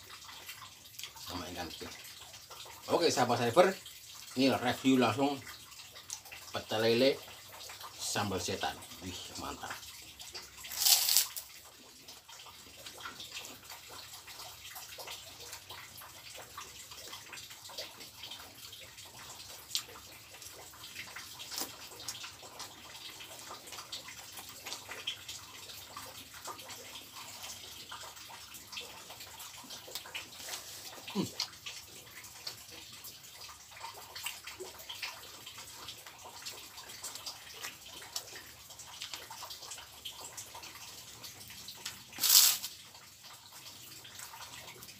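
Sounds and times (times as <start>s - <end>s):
man chewing and lip-smacking: 19.4s - 25.0s, 29.0s - 31.8s, 36.4s - 39.8s
wet clicks and squelches: 36.0s - 39.8s.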